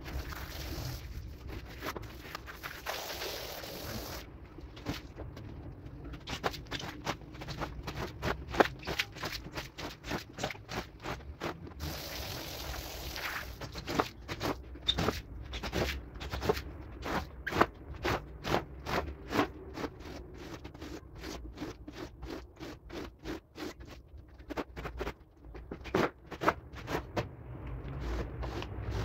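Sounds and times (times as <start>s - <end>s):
rug being scraped: 6.3s - 25.2s, 25.8s - 29.0s.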